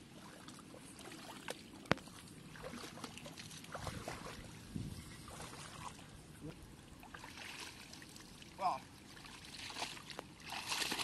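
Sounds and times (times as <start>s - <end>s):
hands splashing in water: 9.4s - 11.0s.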